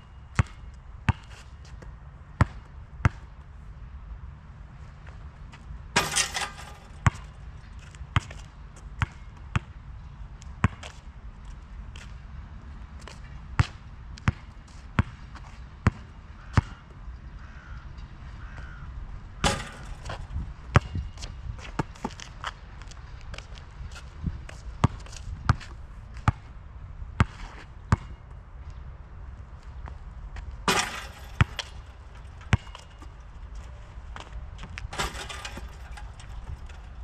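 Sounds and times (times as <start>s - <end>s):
basketball bouncing on asphalt: 0.3s - 1.8s, 2.4s - 3.3s, 6.0s - 9.8s, 10.6s - 11.0s, 13.6s - 16.8s, 19.4s - 22.6s, 24.5s - 26.5s, 27.2s - 28.2s, 30.7s - 37.0s
ball hitting rim and backboard: 6.0s - 7.4s, 19.4s - 21.0s, 30.7s - 33.2s, 34.9s - 37.0s.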